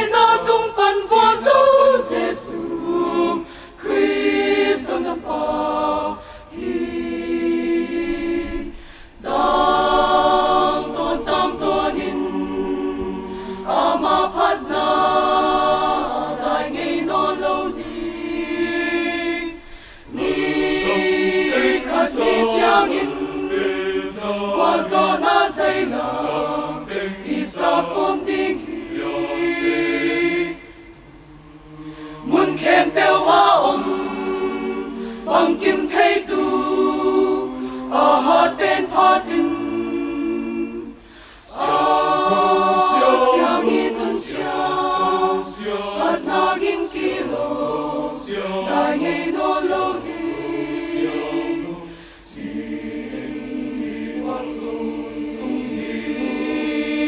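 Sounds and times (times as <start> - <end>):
mixed choir singing a hymn: 0.0 - 57.0.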